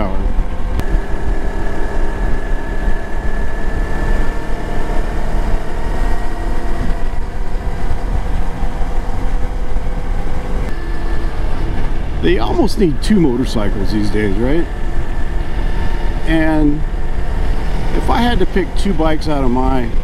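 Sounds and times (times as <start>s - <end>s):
wind noise on microphone: 0.0s - 12.7s
motorcycle engine cruising: 0.0s - 20.0s.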